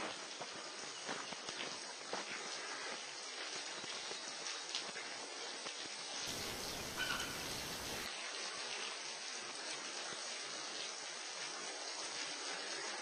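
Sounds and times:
bird chirp: 6.3s - 8.1s
waterfall hissing: 6.3s - 8.1s.

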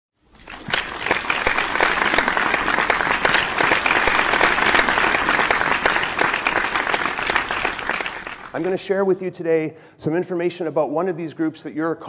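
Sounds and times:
audience applauding: 0.4s - 8.8s.

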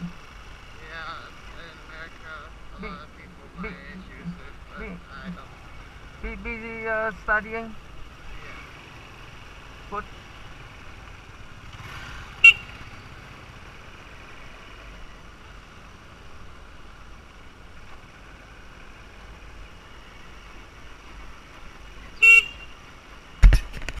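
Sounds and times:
motorbike running on dirt road: 0.0s - 24.0s
motorbike horn beeping: 12.4s - 12.8s, 22.2s - 22.8s.

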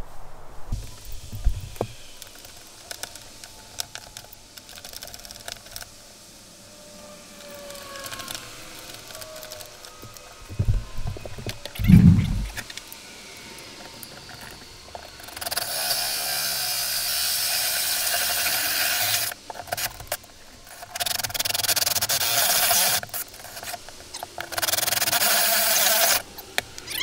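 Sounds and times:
handling noise: 9.2s - 12.7s
drill grinding through wall: 15.4s - 19.4s, 25.0s - 26.2s.

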